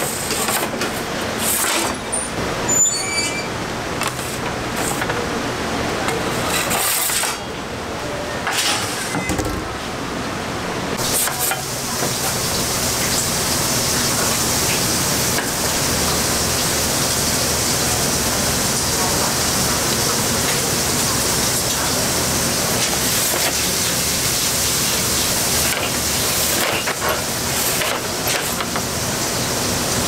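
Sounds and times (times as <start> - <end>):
metal pizza peel scraping and knocking: 0.0 - 2.0, 6.3 - 7.4
kitchen hum: 0.0 - 30.0.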